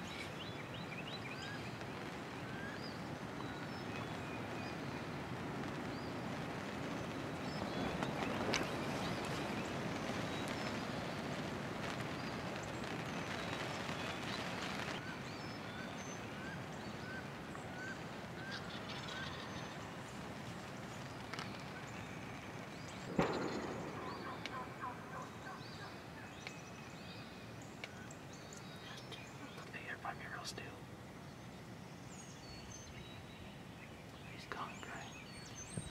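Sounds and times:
outdoor noise: 0.0 - 35.9
short bird calls: 23.0 - 26.8, 34.3 - 35.9
wild turkey gobbling: 24.0 - 26.0.

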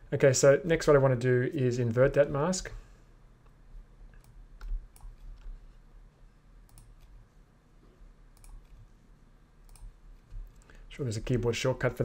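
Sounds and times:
low steady hum: 0.0 - 12.0
computer mouse clicks: 3.4 - 5.6, 6.6 - 7.1, 8.4 - 8.8, 9.6 - 10.8.

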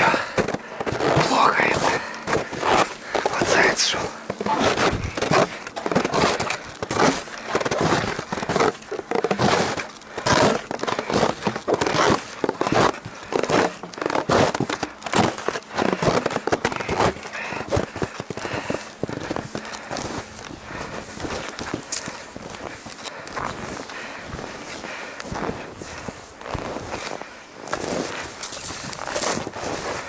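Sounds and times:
footsteps crunching through snow: 0.0 - 30.0.

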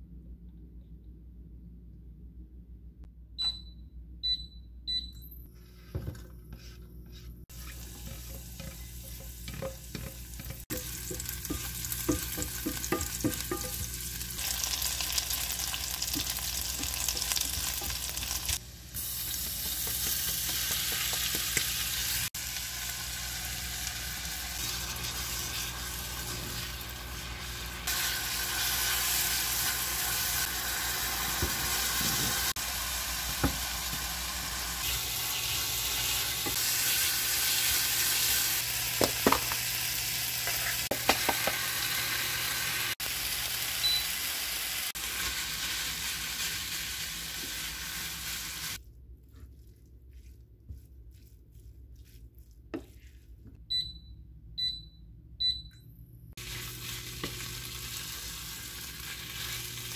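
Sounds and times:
cooktop touch control beeps: 3.4 - 5.5, 43.8 - 44.3, 53.6 - 56.0
spatula scraping a pan: 7.5 - 13.8
food sizzling in oil: 7.5 - 48.8, 56.4 - 59.9.

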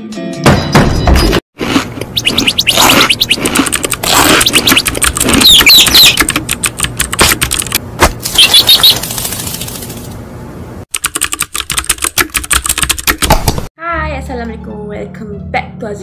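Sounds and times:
rapid clicking sounds: 2.2 - 7.8, 10.9 - 13.7.

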